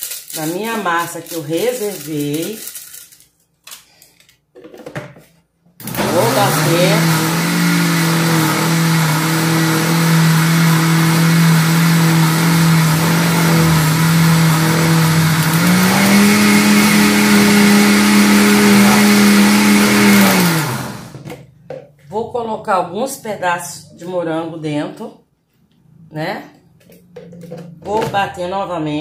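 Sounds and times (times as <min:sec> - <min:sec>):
blender motor running: 0:05.8 - 0:21.2.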